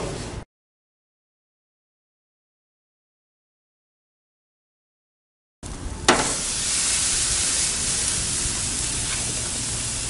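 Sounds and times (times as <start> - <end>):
meat sizzling on a grill: 6.1 - 10.0.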